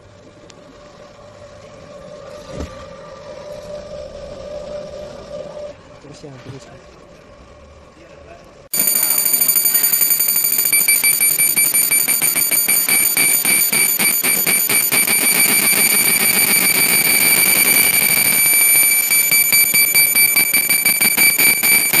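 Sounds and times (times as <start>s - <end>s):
laser machine high-pitched whine: 8.8s - 22.0s.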